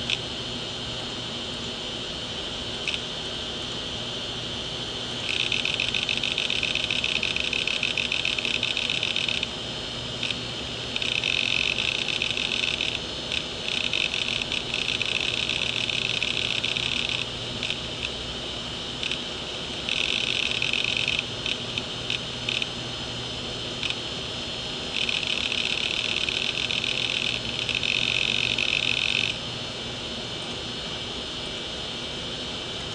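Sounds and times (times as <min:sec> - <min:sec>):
hard disk head buzzing chatter: 0:00.0 - 0:32.9
hard disk spindle hum: 0:00.0 - 0:32.9
hard disk clicks: 0:05.2 - 0:09.5, 0:10.2 - 0:18.2.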